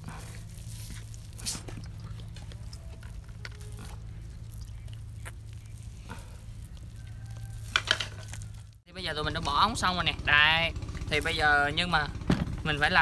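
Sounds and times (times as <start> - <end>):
wet squelching and scraping: 0.0 - 8.9.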